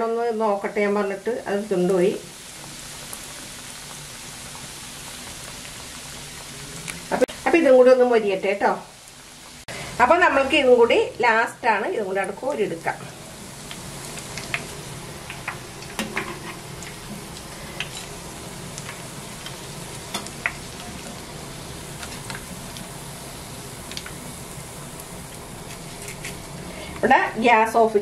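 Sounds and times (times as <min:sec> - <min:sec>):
hot oil sizzling in a frying pan: 0:00.0 - 0:28.0
sharp crackles and ticks: 0:03.0 - 0:07.0, 0:13.6 - 0:16.0, 0:18.7 - 0:21.2, 0:21.9 - 0:22.9, 0:23.8 - 0:24.2.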